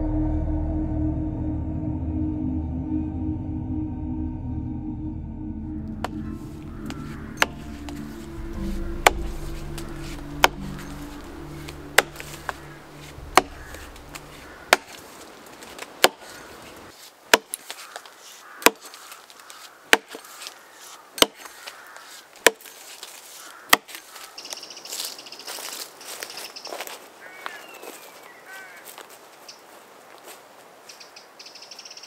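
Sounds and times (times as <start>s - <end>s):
axe chopping log: 6.0s - 15.0s, 15.6s - 16.4s, 17.3s - 17.8s, 18.6s - 19.0s, 19.9s - 20.3s, 21.2s - 21.6s, 22.4s - 22.8s, 23.7s - 24.0s.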